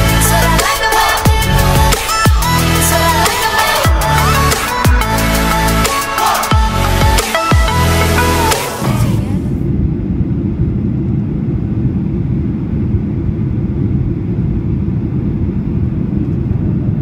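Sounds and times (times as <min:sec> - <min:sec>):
jet airliner cabin rumble: 0:00.0 - 0:06.4, 0:08.7 - 0:17.0.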